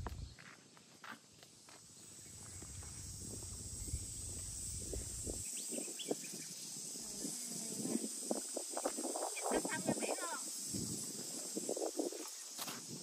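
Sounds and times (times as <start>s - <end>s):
wind rumbling on microphone: 0.0s - 0.4s, 2.1s - 13.0s
footsteps scuffing on rock: 0.0s - 3.5s, 12.1s - 13.0s
high insect drone: 0.0s - 13.0s.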